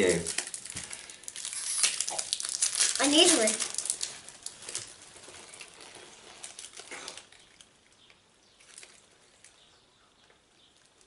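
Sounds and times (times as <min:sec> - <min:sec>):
foil wrappers crinkling: 0:00.0 - 0:09.6
cards rustling: 0:00.1 - 0:06.8.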